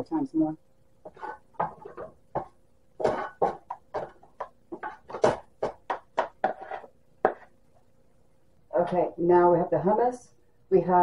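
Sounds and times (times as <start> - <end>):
spatula scraping a frying pan: 1.1 - 2.1, 3.0 - 5.4, 6.3 - 7.5.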